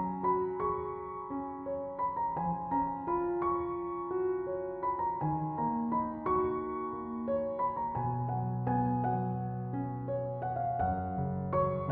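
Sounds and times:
slow gentle piano notes: 0.0s - 11.9s.

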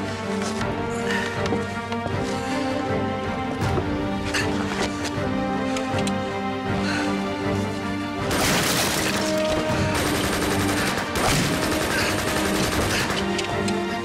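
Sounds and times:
rapid gunfire: 8.3s - 13.4s.

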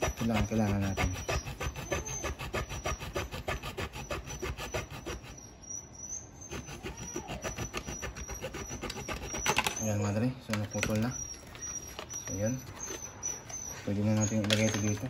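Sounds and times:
hand saw cutting plastic: 0.0s - 5.4s, 6.5s - 9.9s, 14.1s - 15.0s.

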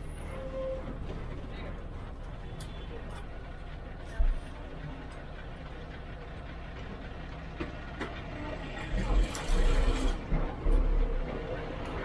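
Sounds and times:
diesel bus engine: 0.0s - 12.0s
road noise: 0.0s - 12.0s.

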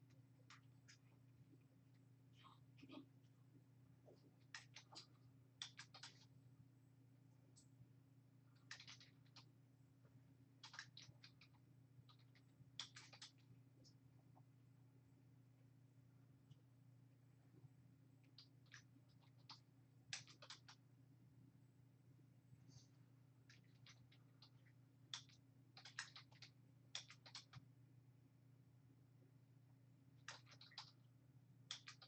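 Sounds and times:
steady low hum: 0.0s - 32.0s
faint keyboard typing: 4.0s - 6.4s, 8.5s - 9.6s, 10.5s - 14.4s, 18.2s - 20.9s, 23.4s - 27.7s, 30.2s - 32.0s.

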